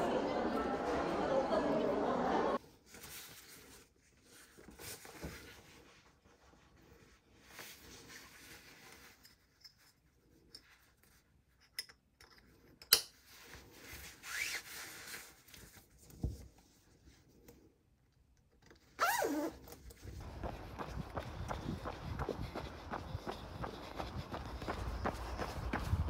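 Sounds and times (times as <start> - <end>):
clothing rustling: 2.6 - 10.3
jacket zipper: 14.2 - 14.8, 19.0 - 19.7.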